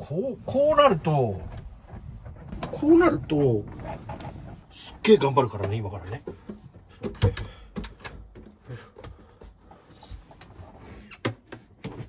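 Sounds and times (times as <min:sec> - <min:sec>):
soft rustling: 0:00.5 - 0:06.9
knocks and thumps: 0:01.4 - 0:04.8, 0:05.5 - 0:09.6.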